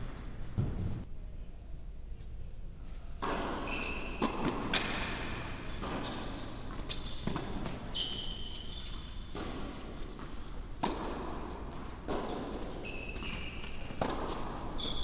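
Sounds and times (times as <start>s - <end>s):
shoes squeaking on court: 3.2s - 5.1s, 5.7s - 15.0s
racquet striking tennis ball: 3.2s - 6.0s, 9.3s - 14.9s
tennis ball bouncing: 9.2s - 14.9s.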